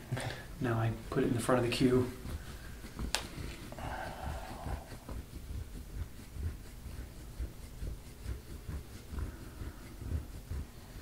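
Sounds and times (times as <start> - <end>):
hands rubbing skin: 0.0 - 11.0.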